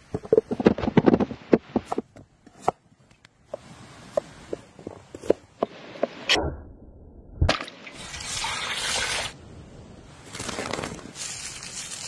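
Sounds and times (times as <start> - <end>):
steady hiss: 7.8 - 12.0.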